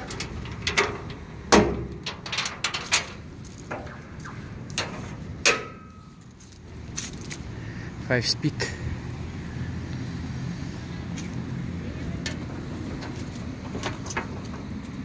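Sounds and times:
metal gates clicking and clanking: 0.0 - 6.3.

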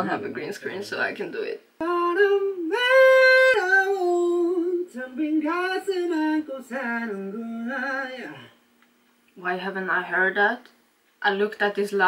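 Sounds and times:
man singing slow melody: 1.8 - 8.7.

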